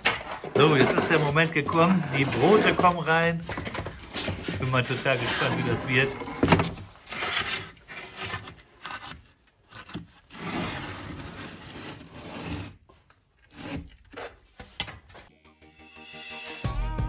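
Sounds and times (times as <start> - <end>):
metal tray scraping on stone: 0.5 - 8.6.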